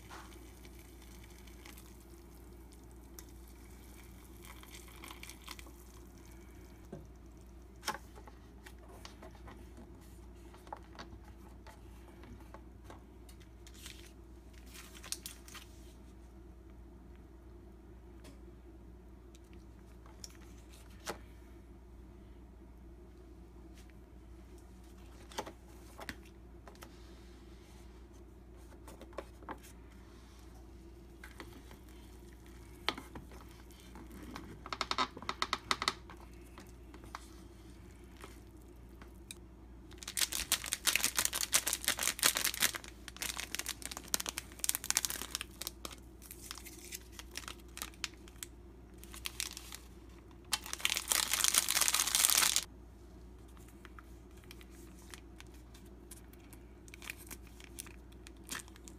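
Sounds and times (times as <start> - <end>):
plastic sachets crinkling and tearing: 13.7 - 15.6, 39.9 - 49.9, 50.5 - 52.7, 53.6 - 58.9.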